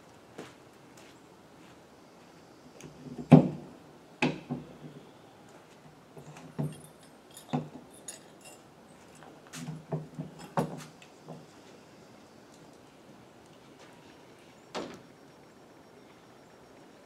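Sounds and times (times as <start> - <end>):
light metallic clinks: 6.2 - 9.3.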